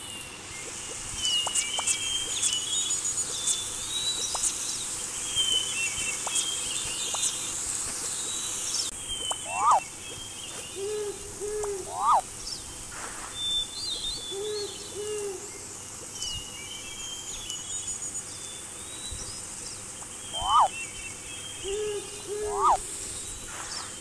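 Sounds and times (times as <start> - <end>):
small birds chirping: 0.0 - 24.0
loud rising bird call: 9.3 - 9.9, 10.8 - 12.3, 20.3 - 20.8, 21.7 - 22.9
owl hooting: 9.3 - 9.9, 10.8 - 12.4, 14.3 - 15.5, 20.3 - 20.8, 21.6 - 23.1.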